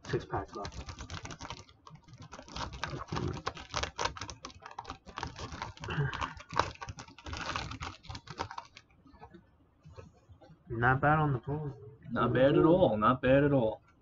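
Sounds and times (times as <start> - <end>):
typing on a computer keyboard: 0.0 - 8.9.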